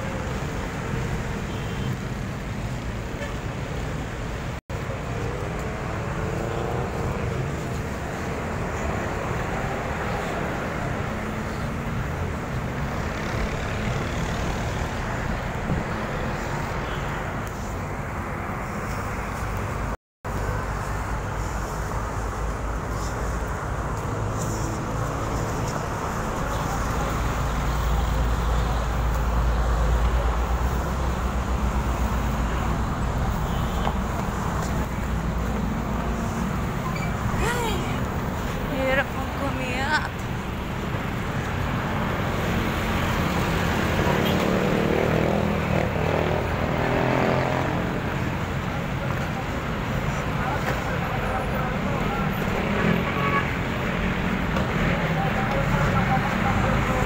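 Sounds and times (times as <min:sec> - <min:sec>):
busy road traffic: 0:00.0 - 0:57.0.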